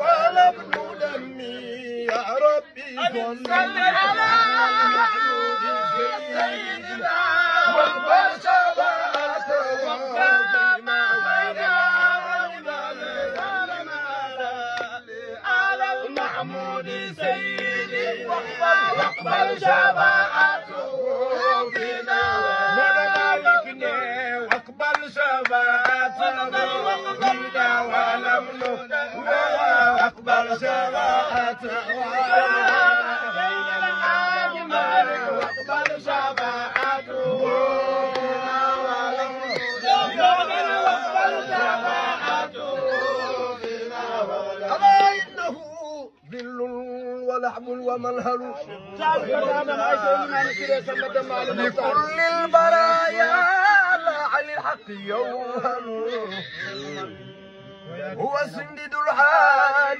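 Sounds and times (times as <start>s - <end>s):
men chanting together: 0.0s - 45.7s, 46.3s - 59.9s
hand clapping: 0.6s - 1.0s, 14.7s - 15.0s, 23.1s - 23.4s, 24.5s - 26.0s, 35.3s - 37.0s, 38.1s - 38.3s.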